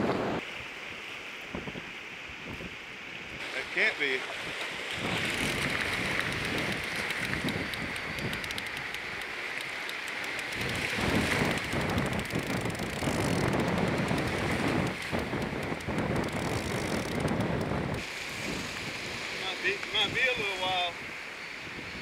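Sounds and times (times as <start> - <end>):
surf breaking and foam fizzing: 3.4 - 8.2, 18.0 - 21.0
wind buffeting microphone: 4.9 - 8.9, 10.4 - 19.4.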